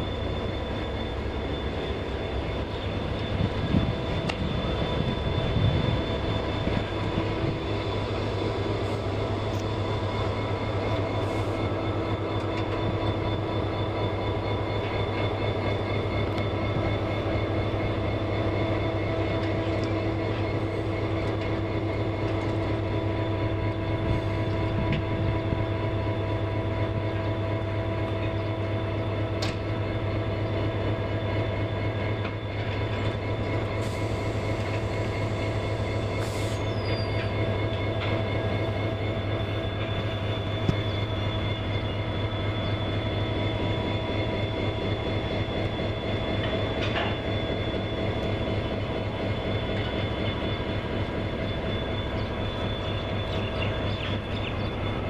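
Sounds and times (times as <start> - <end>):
steady whine: 0.0 - 55.0
locomotive engine idling: 29.6 - 55.0.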